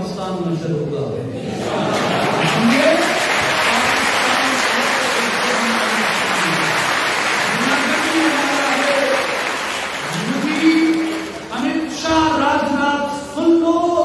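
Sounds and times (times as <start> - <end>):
audience applauding: 1.7 - 11.7.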